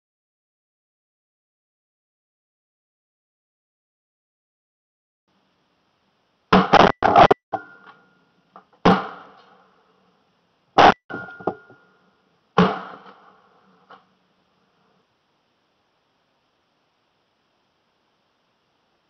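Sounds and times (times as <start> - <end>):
shotgun shots: 6.5 - 7.4, 12.6 - 13.3.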